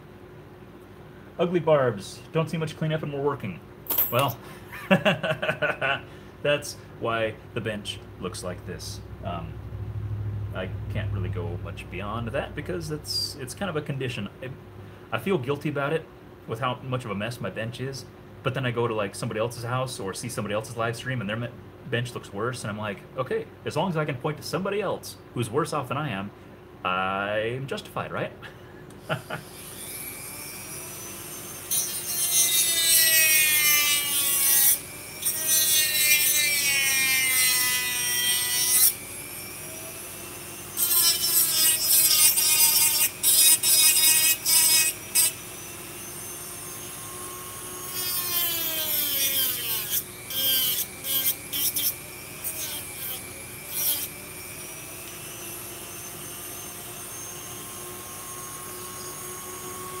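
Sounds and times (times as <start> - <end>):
rotary tool grinding plastic: 47.8 - 54.3.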